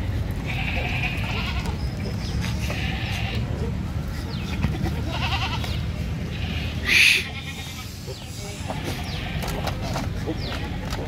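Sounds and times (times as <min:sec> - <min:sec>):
goats bleating: 0:00.4 - 0:01.8, 0:02.6 - 0:03.5, 0:04.5 - 0:11.0.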